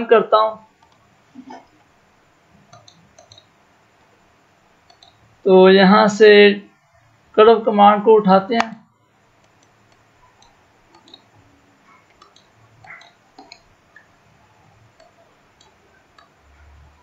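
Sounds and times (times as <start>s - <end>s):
faint computer mouse clicks: 4.8s - 5.2s, 9.4s - 11.4s, 12.1s - 14.1s.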